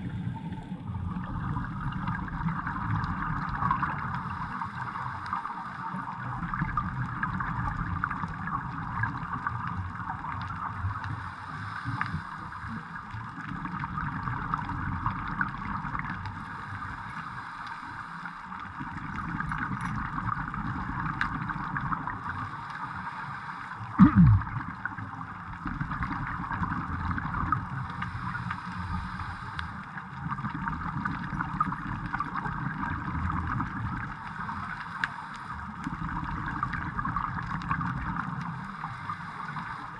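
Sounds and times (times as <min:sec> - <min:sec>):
muffled underwater rumble: 0:00.0 - 0:39.9
fine crackle: 0:00.1 - 0:39.9
low sweep dropping in pitch: 0:24.0 - 0:24.5.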